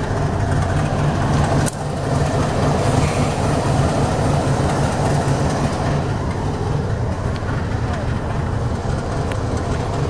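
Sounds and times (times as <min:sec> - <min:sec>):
locomotive engine rumbling: 0:00.0 - 0:10.0.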